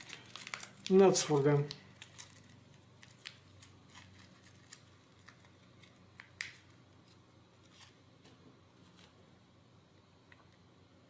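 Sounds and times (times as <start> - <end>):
plastic bag rustling: 0.0 - 5.9.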